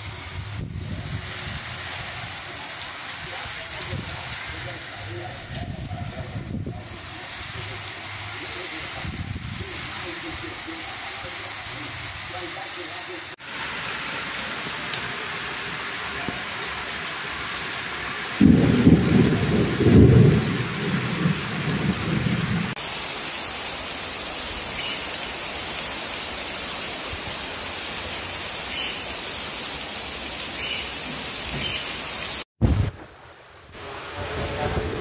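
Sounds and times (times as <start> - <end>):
heavy rain on pavement: 0.0 - 35.0
thunder rumble: 18.4 - 22.8, 32.6 - 33.2.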